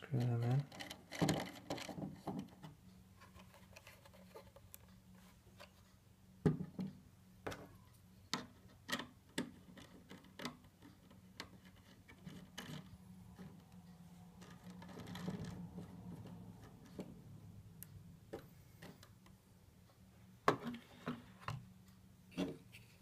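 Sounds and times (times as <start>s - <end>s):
faint low hum: 0.0s - 23.0s
plastic parts clicking and knocking: 0.3s - 4.9s, 6.4s - 17.2s.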